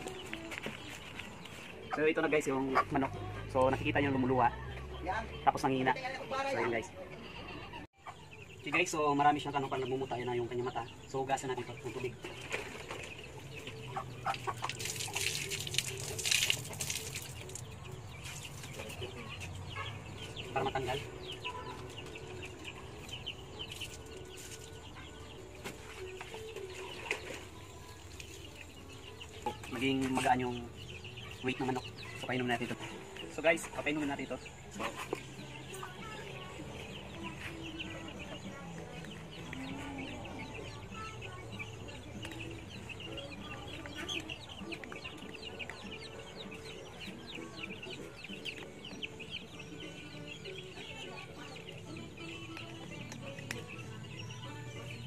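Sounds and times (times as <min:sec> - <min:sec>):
chickens chirping: 0:00.0 - 0:55.0
water splashing: 0:14.3 - 0:17.7.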